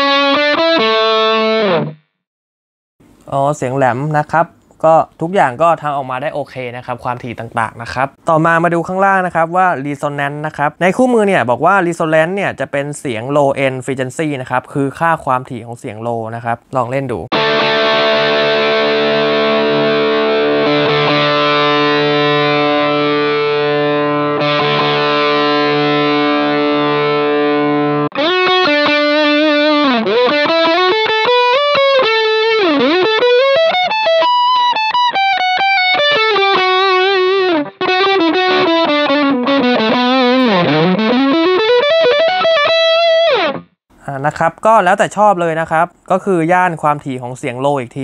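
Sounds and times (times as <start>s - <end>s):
distorted electric guitar: 0.0s - 2.1s, 17.3s - 43.8s.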